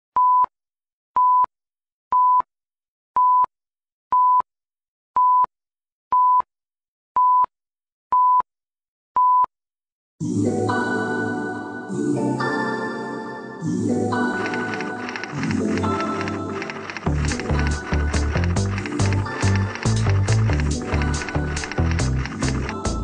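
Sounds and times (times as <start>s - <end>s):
electronic countdown beeps: 4.1s - 4.5s, 5.2s - 5.5s, 7.2s - 7.5s, 8.1s - 8.5s, 9.2s - 9.5s
music with held chords: 17.1s - 23.0s.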